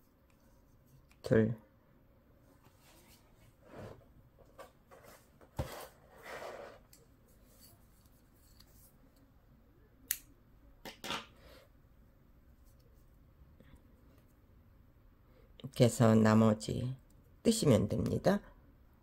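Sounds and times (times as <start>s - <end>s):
soft thread rustles: 2.4s - 9.4s.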